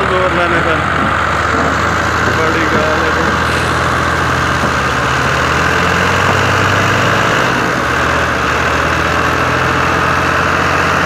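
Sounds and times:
tractor diesel engine under load: 0.0 - 11.0.

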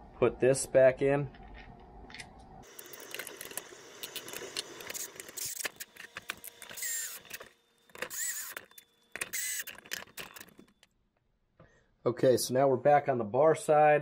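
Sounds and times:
cordless drill whining: 4.8 - 10.8.

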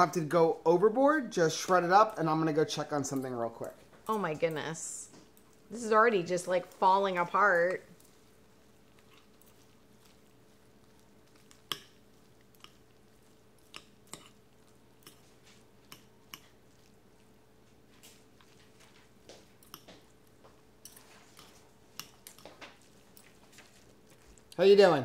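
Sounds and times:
forks shredding cooked chicken: 5.7 - 24.9.

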